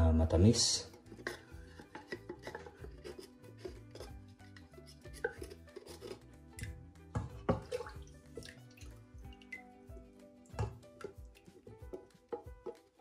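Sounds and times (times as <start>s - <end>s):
soft background music: 0.0s - 13.0s
wooden spoon scraping metal can: 0.6s - 6.8s.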